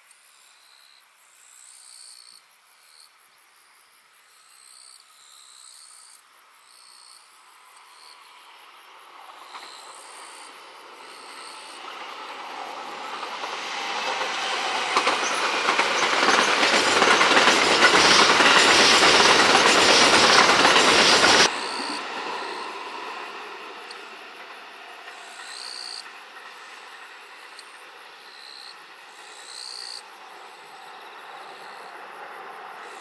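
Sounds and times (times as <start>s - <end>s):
insects chirping: 0.0s - 33.0s
electric train passing: 7.6s - 33.0s
wheel and rail noise: 8.2s - 33.0s.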